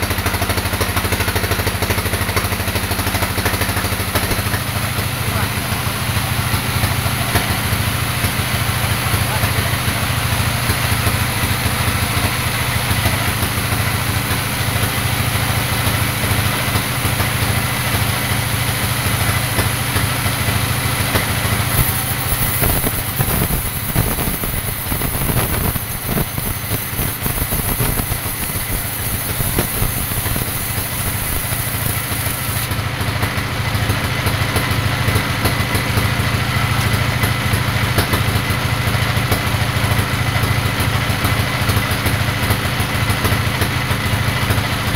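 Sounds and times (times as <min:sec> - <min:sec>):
band saw cutting log: 0:12.2 - 0:32.8.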